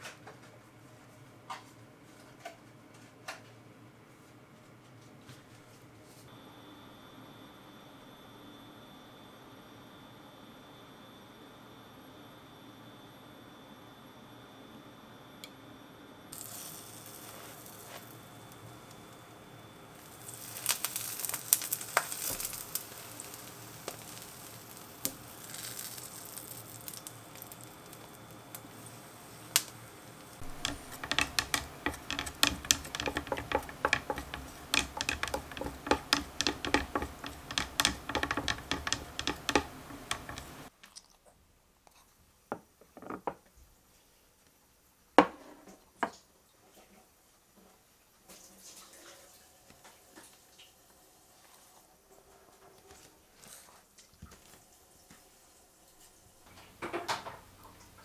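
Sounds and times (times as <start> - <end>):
sandwich sizzling in a pan: 16.3 - 40.7.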